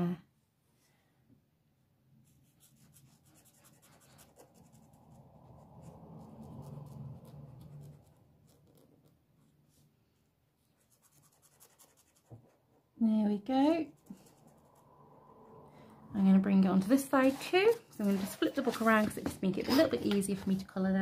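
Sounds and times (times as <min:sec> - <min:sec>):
pen scratching on paper: 0:02.2 - 0:09.8, 0:10.8 - 0:12.6, 0:13.8 - 0:14.9.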